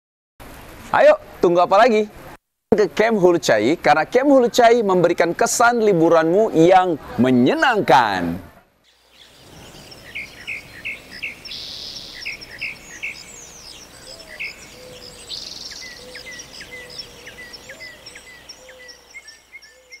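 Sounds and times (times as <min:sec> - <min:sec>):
faint steady hiss: 0:00.4 - 0:20.0
birds chirping and twittering: 0:08.8 - 0:20.0
buzzy bird trills: 0:08.9 - 0:20.0.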